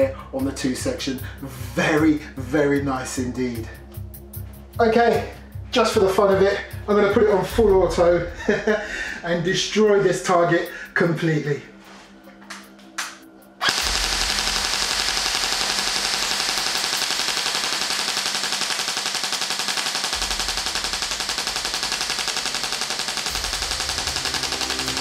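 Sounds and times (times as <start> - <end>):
airsoft rifle rapid fire: 13.6 - 25.0.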